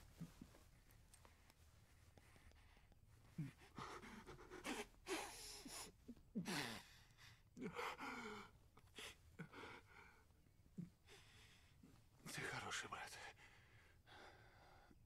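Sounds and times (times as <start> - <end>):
man breathing hard: 2.4 - 10.2, 13.4 - 15.0.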